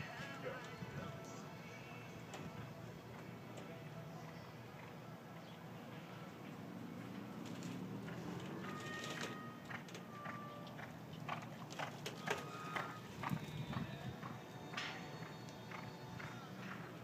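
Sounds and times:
horse hoofbeats on dirt: 0:07.0 - 0:17.0.

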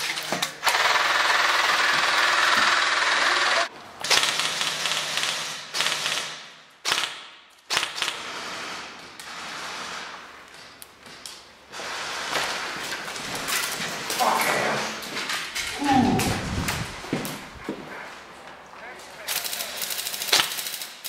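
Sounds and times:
airsoft rifles firing full auto: 0:00.6 - 0:10.2, 0:19.2 - 0:21.0.

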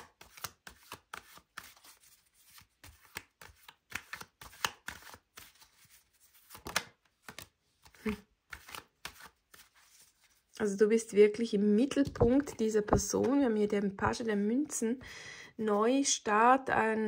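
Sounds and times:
cards shuffling: 0:00.0 - 0:10.6.

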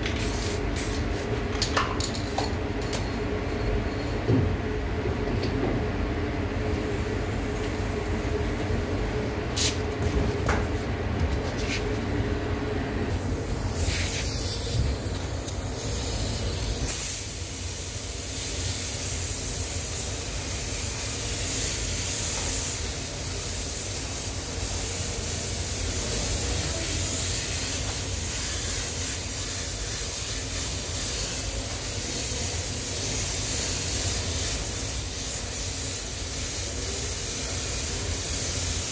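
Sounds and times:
spray gun hissing: 0:00.2 - 0:01.1, 0:13.1 - 0:38.9.

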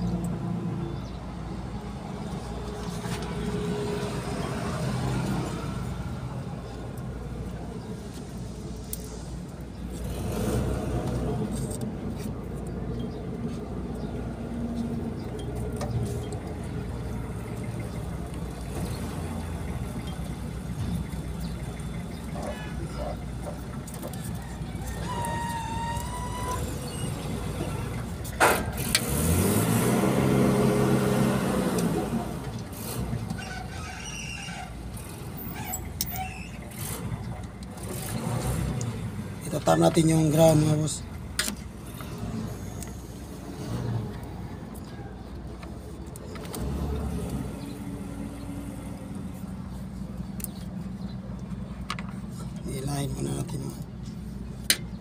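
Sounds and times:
vehicle engines rumbling: 0:00.0 - 0:55.0
engine revving: 0:09.9 - 0:11.8, 0:26.1 - 0:33.4, 0:36.7 - 0:41.0, 0:41.8 - 0:44.4, 0:46.3 - 0:49.5.

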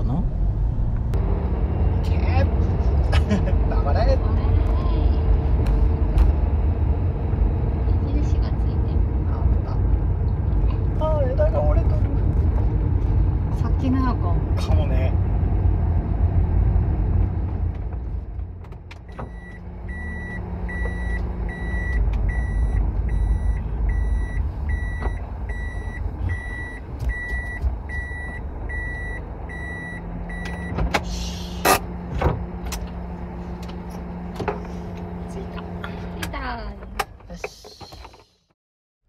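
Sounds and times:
van engine rumble: 0:00.0 - 0:38.5
reverse warning beeper: 0:19.1 - 0:30.8.

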